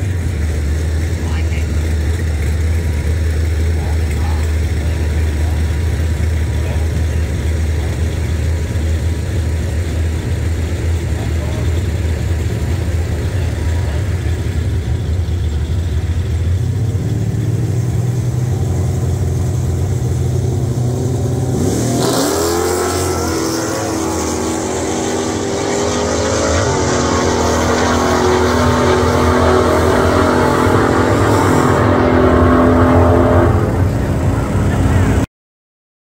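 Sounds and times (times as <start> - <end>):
truck engine revving: 0.0 - 35.3.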